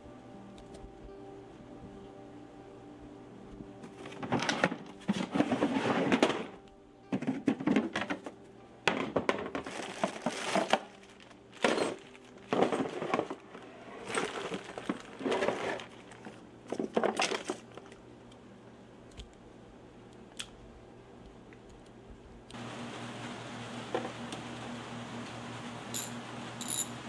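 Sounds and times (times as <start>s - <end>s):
plastic bag crinkling: 9.5s - 18.0s.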